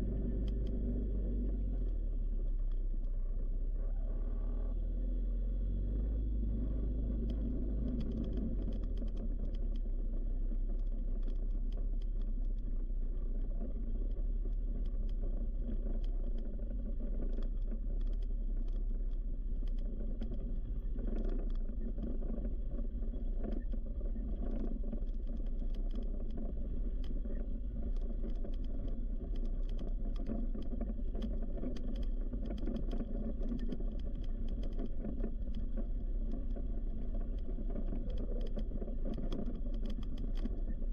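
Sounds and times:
short clicks and rattles: 15.8 - 40.9.

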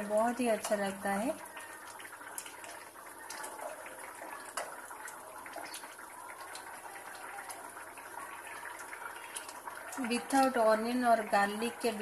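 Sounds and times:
curry simmering and bubbling: 0.0 - 12.0
spatula stirring in pan: 0.5 - 6.8.

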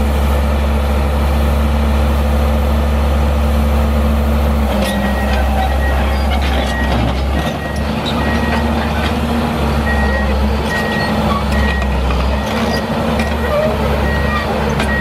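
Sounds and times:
diesel engine running: 0.0 - 15.0
high travel alarm beeps: 14.0 - 15.0.

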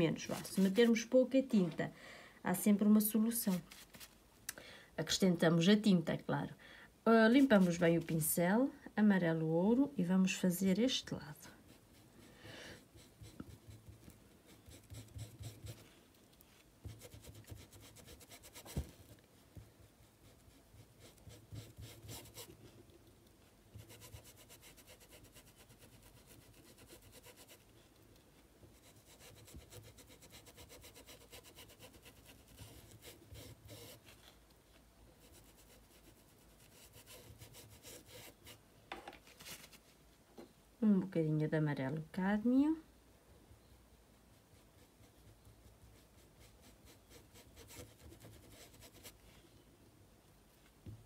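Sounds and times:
paintbrush rubbing on cloth: 0.0 - 1.1, 7.3 - 8.2, 11.6 - 19.2, 19.8 - 22.7, 23.8 - 27.7, 28.7 - 34.3, 35.1 - 38.6, 44.3 - 49.2.

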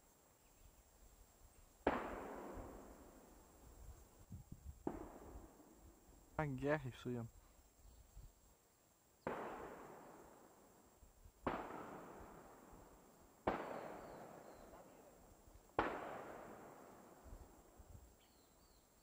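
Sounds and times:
gunshots with long echo: 1.8 - 3.3, 4.8 - 6.0, 9.2 - 10.8, 11.4 - 15.1, 15.7 - 17.8.

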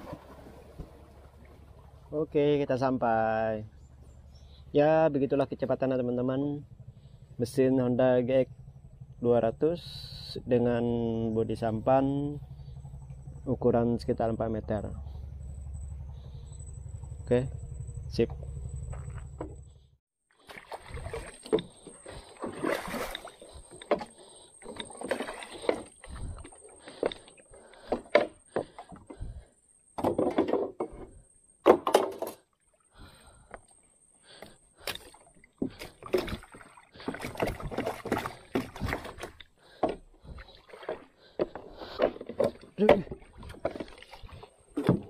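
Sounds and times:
water sloshing: 0.0 - 2.1, 18.6 - 29.4, 32.1 - 45.0
knocks on wooden canoe hulls: 30.0 - 32.4, 35.6 - 44.0, 44.8 - 45.0.

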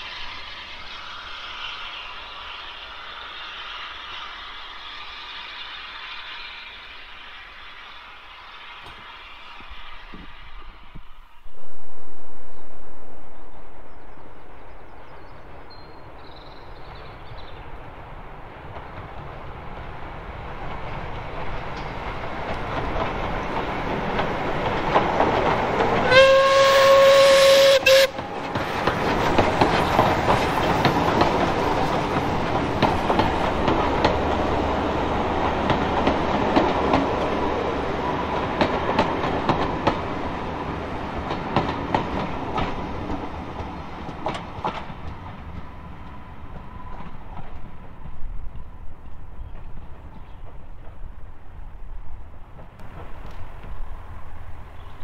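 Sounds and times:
wheels clicking over rail joints: 18.5 - 51.3
steam locomotive whistle blast: 26.0 - 28.2.

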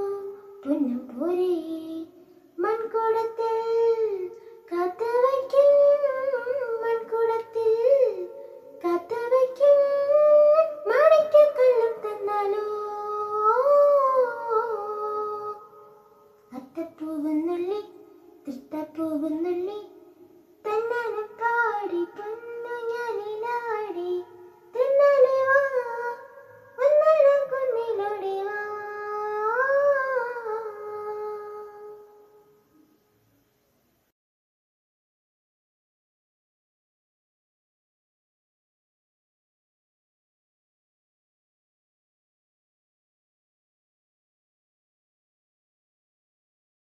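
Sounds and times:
child singing unaccompanied: 0.0 - 32.6.

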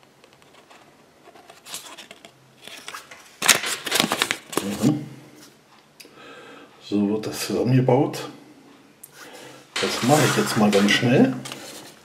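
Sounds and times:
paper leaflet crinkling: 0.4 - 4.9, 9.8 - 12.0.

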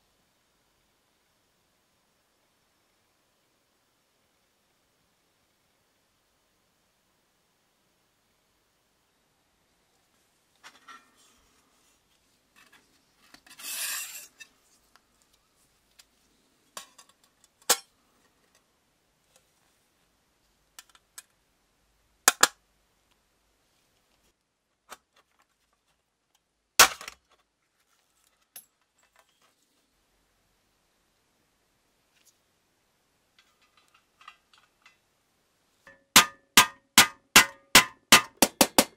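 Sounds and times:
metal scraping on wooden table: 13.4 - 14.6.

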